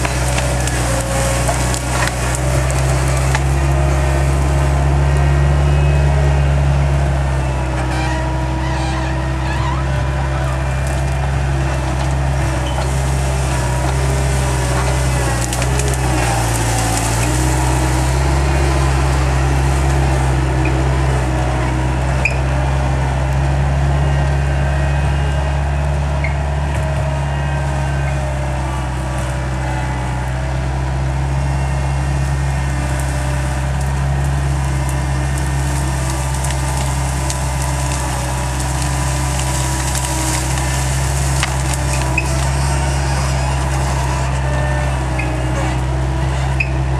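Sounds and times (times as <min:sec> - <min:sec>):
branches crackling and snapping: 0:00.0 - 0:46.9
skid steer engine running: 0:00.0 - 0:46.9.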